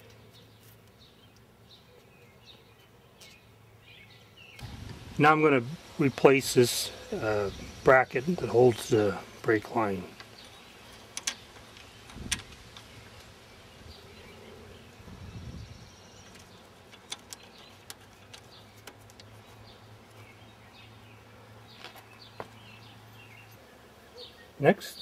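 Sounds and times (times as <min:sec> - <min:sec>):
bird or insect chirps: 0:00.0 - 0:25.0
steady low hum: 0:04.6 - 0:21.7
small metallic clicks and taps: 0:10.2 - 0:12.9, 0:16.2 - 0:19.4.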